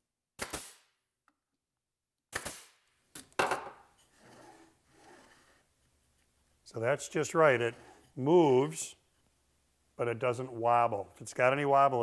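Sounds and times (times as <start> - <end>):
wooden jig scraping along fence: 4.0 - 5.9, 6.8 - 9.2.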